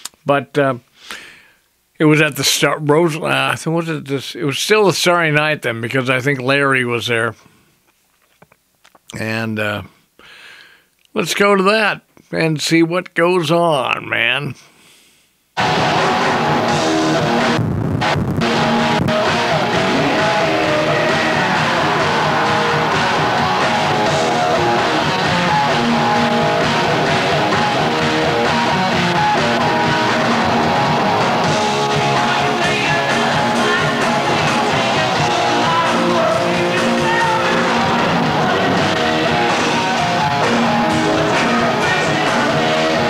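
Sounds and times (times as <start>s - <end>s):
drums: 15.6s - 43.0s
electric guitars: 15.6s - 43.0s
heavy metal band playing live: 15.6s - 43.0s.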